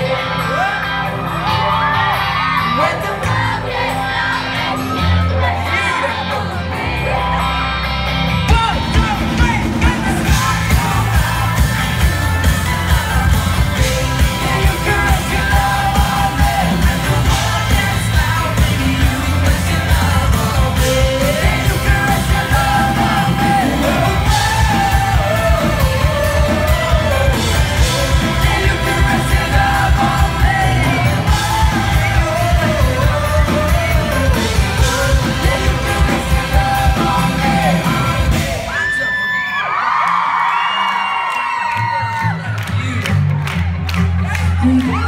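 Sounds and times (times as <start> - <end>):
bass guitar: 0.0 - 38.8, 41.8 - 45.0
electric guitar: 0.0 - 38.8
pop-rock band playing live: 0.0 - 39.4
drums: 0.0 - 45.0
man singing: 2.6 - 3.9, 8.5 - 39.1.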